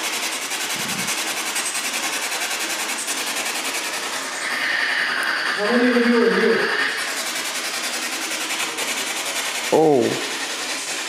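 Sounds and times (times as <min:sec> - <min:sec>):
static hiss with rapid pulses: 0:00.0 - 0:07.6.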